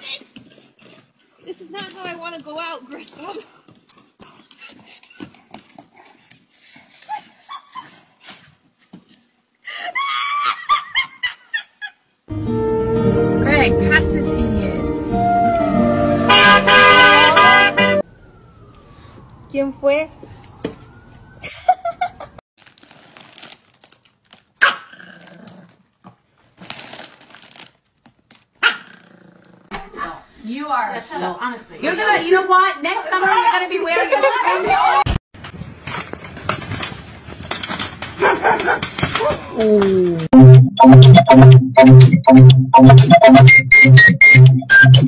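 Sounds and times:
high-pitched laughter: 0:09.7 - 0:12.0
foil bag crinkling: 0:22.6 - 0:24.6, 0:26.4 - 0:28.6
small dog barking: 0:24.6 - 0:25.0, 0:28.6 - 0:28.9, 0:38.2 - 0:38.8.

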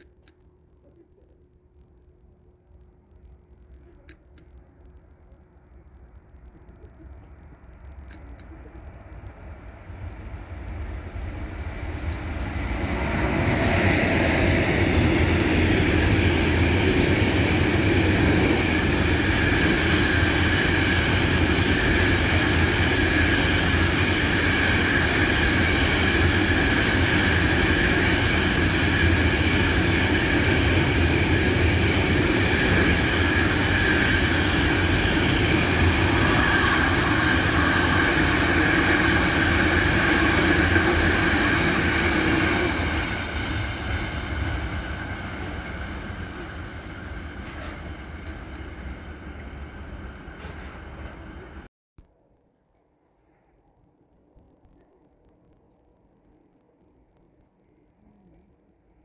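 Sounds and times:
freight train rumbling past: 0:08.5 - 0:51.7.

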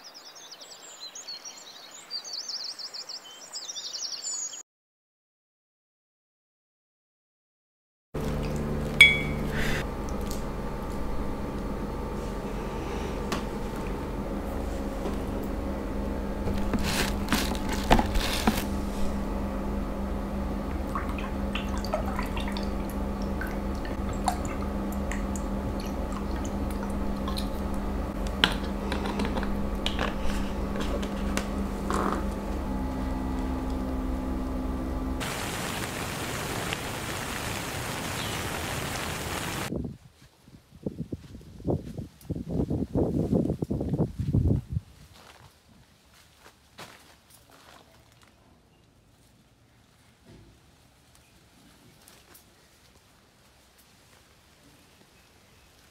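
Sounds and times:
low hum: 0:08.2 - 0:37.4
steady hiss: 0:35.2 - 0:39.7.

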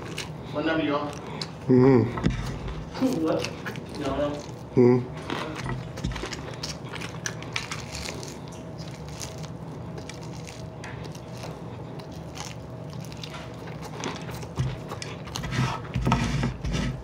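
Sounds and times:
chewing crispy chicken: 0:00.0 - 0:16.0.

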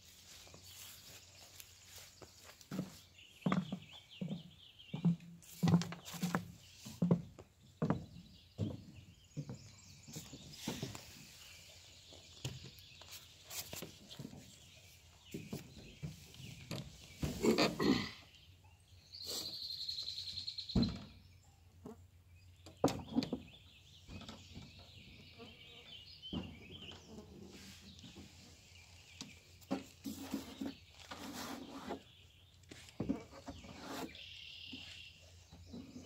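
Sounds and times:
birds calling: 0:00.1 - 0:36.0
knocks and thumps in a canoe: 0:02.7 - 0:11.4, 0:22.6 - 0:25.2, 0:26.2 - 0:27.1, 0:29.2 - 0:32.1, 0:32.8 - 0:34.9.

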